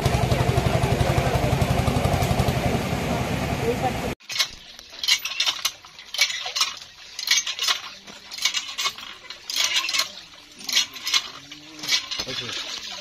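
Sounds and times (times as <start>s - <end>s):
hand pump clanking: 4.2s - 13.0s
water gushing into jug: 4.4s - 13.0s.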